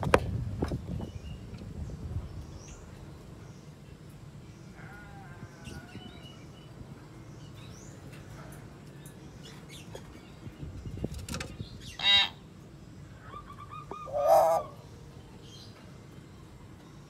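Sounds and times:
myna calling: 0:11.9 - 0:12.4, 0:13.2 - 0:14.9.

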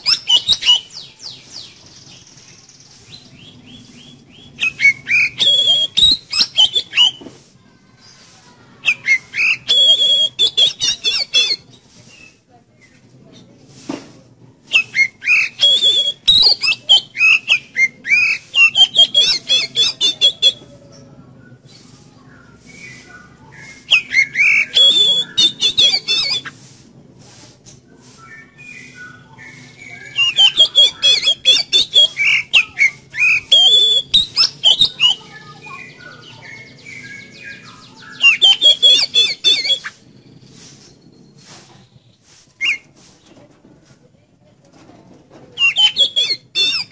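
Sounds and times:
bird singing whistles and trills: 0:00.0 - 0:07.2, 0:08.8 - 0:12.4, 0:14.7 - 0:20.8, 0:21.4 - 0:26.6, 0:28.1 - 0:41.4, 0:42.6 - 0:42.9, 0:45.6 - 0:46.9.

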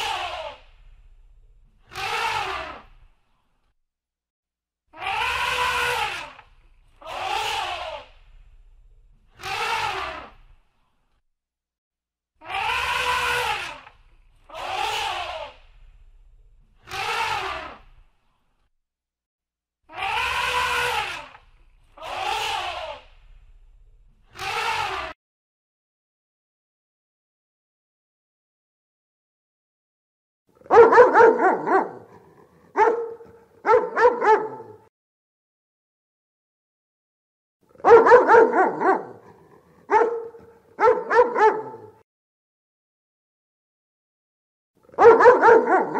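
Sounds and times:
elephant trumpeting: 0:01.9 - 0:02.9, 0:05.0 - 0:08.2, 0:09.4 - 0:10.4, 0:12.4 - 0:15.6, 0:16.8 - 0:17.9, 0:19.9 - 0:23.1, 0:24.3 - 0:25.1
dog barking: 0:30.6 - 0:34.9, 0:37.8 - 0:42.0, 0:44.9 - 0:45.9.

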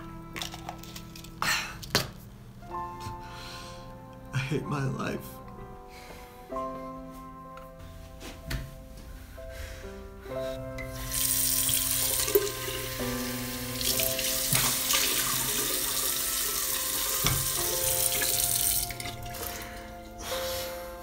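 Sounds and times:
faucet running into a basin: 0:10.9 - 0:19.6.

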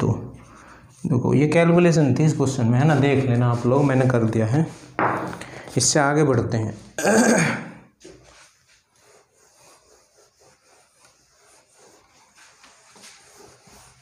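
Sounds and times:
cloth rubbing on whiteboard: 0:00.0 - 0:05.0, 0:08.0 - 0:14.0.

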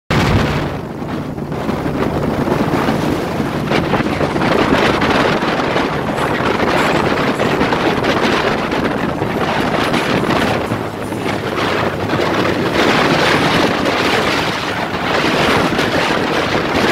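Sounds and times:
wind buffeting microphone: 0:00.1 - 0:16.9
motorcycle engines running: 0:00.8 - 0:16.9.

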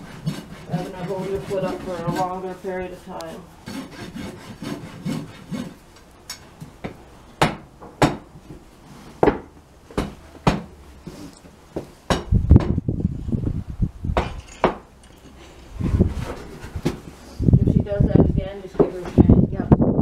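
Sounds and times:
rasp filing a hoof: 0:00.0 - 0:05.8
sharp knocks on wood: 0:06.8 - 0:08.3, 0:09.2 - 0:10.7, 0:11.8 - 0:12.8
heavy low thudding: 0:12.1 - 0:14.4.

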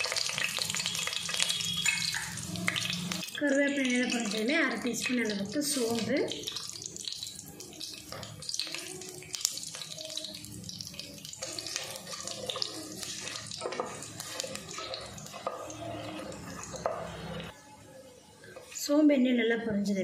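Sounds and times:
spices sizzling in hot oil: 0:00.0 - 0:17.6
wooden spatula stirring: 0:11.0 - 0:17.5.

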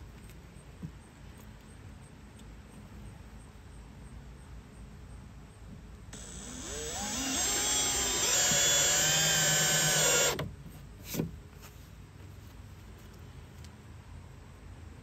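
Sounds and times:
drill-driver driving screw: 0:06.2 - 0:10.4.

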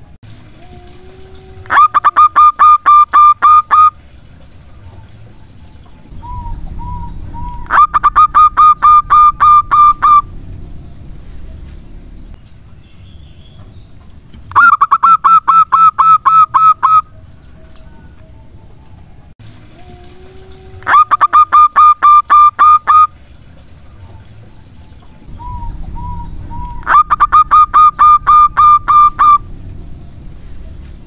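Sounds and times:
dove cooing: 0:06.1 - 0:10.4, 0:19.7 - 0:23.1, 0:25.2 - 0:29.6.

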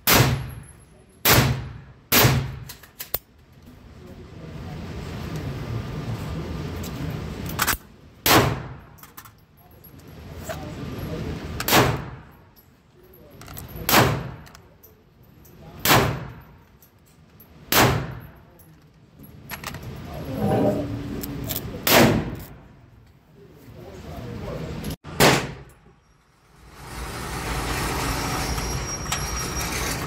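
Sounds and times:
gunshots indoors: 0:00.0 - 0:02.9, 0:08.2 - 0:09.0, 0:11.6 - 0:12.3, 0:13.9 - 0:14.5, 0:15.8 - 0:16.5, 0:17.7 - 0:18.3, 0:21.8 - 0:22.6, 0:25.1 - 0:25.7.

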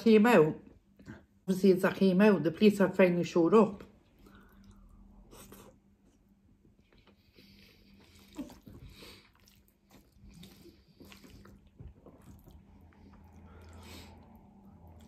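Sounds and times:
chewing and wet mouth sounds: 0:03.8 - 0:15.0.

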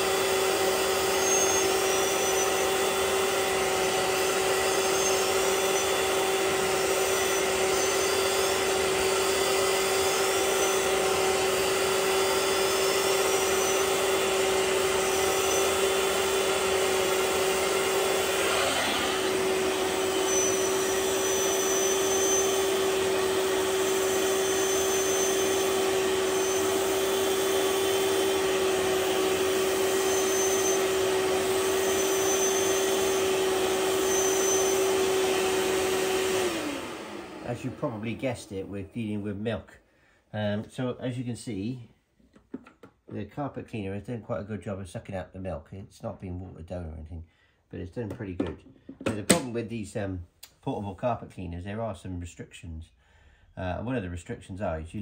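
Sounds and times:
carpet cleaner suction running: 0:00.0 - 0:39.4.

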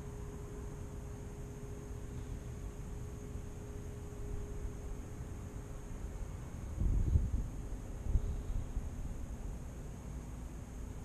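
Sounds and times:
faint steady hum: 0:00.0 - 0:11.0
wind buffeting microphone: 0:06.6 - 0:09.3.

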